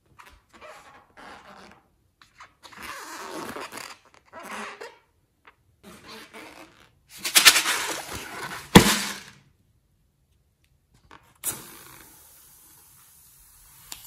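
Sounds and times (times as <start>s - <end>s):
sharp knock: 8.8s - 9.3s.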